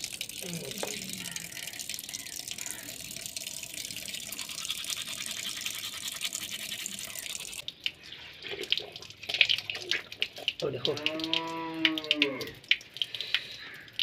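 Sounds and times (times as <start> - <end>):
mouth rinsing with water: 0.0 - 14.0
toothbrush scrubbing teeth: 4.1 - 7.6.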